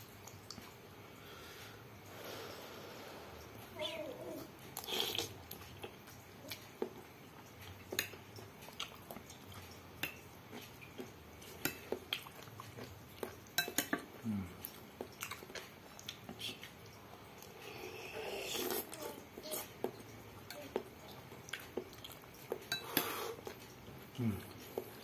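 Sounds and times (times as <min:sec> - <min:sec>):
quiet chewing: 0:00.2 - 0:00.8, 0:03.3 - 0:25.0
cutlery clinking on glass bowl: 0:13.6 - 0:14.1, 0:22.6 - 0:23.1.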